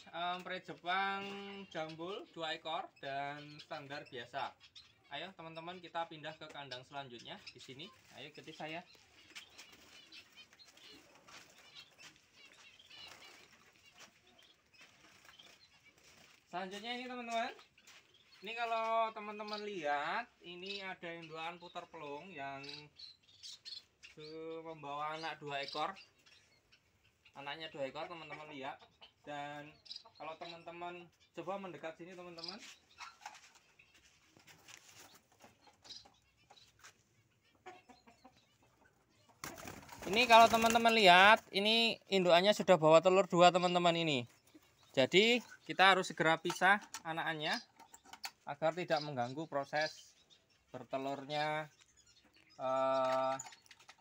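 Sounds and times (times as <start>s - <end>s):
wings fluttering: 8.0s - 16.6s, 32.6s - 37.0s, 39.3s - 41.6s
faint rustles and clicks in cage: 32.5s - 37.2s, 53.0s - 54.0s.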